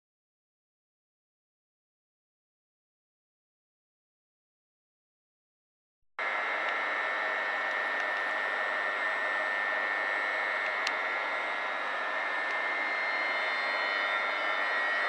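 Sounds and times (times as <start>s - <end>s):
high held whine: 6.2s - 15.0s.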